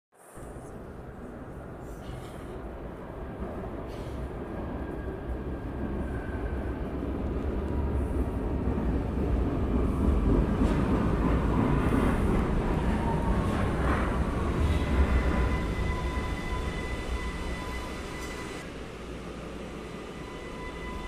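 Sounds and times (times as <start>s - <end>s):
metro train rumbling: 0.2s - 21.0s
faint high whine: 14.6s - 21.0s.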